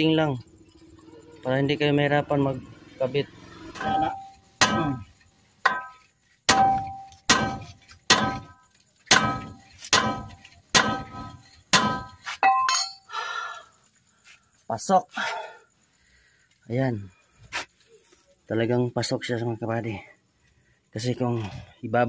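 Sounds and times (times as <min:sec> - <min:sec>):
hammer striking metal: 0:03.8 - 0:05.0, 0:05.6 - 0:13.0.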